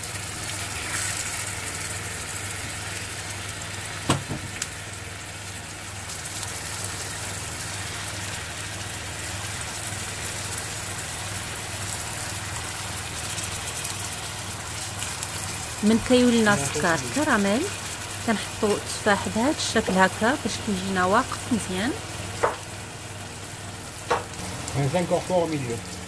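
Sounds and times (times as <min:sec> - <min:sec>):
caramel sizzling in a pan: 0:00.0 - 0:26.0
low steady hum: 0:14.5 - 0:26.0.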